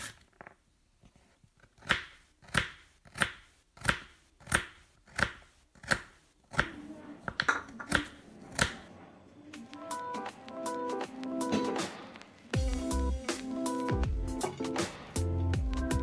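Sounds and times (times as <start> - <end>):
knife chopping on wooden board: 1.8 - 6.7.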